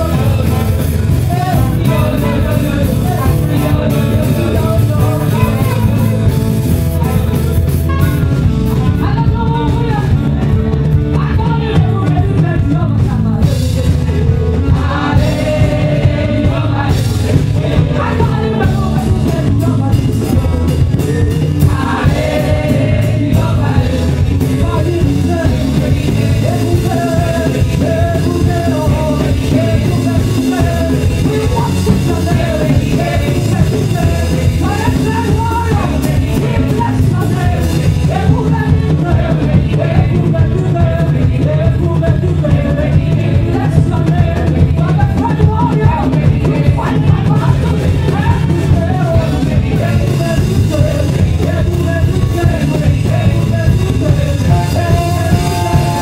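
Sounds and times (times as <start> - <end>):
bass: 0.0 - 56.0
drums: 0.0 - 56.0
keyboard: 0.0 - 56.0
alto saxophone melody: 54.5 - 56.0.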